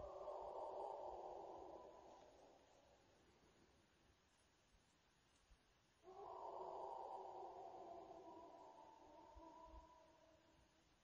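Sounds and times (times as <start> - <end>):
long drawn-out howl: 0.0 - 3.0, 6.0 - 10.7.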